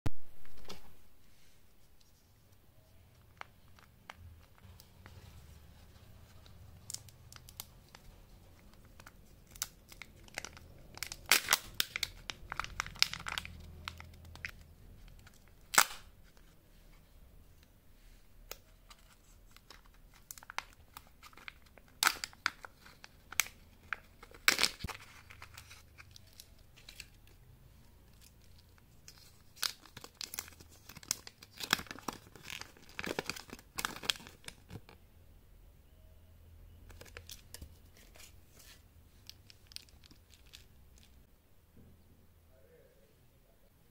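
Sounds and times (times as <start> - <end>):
candy wrappers crinkling: 2.9 - 16.6, 18.5 - 35.0, 36.9 - 41.3.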